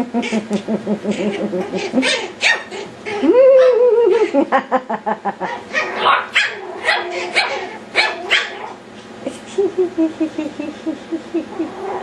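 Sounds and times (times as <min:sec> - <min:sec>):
puppies yapping and growling: 0:00.1 - 0:04.3, 0:05.4 - 0:09.2, 0:11.5 - 0:12.0.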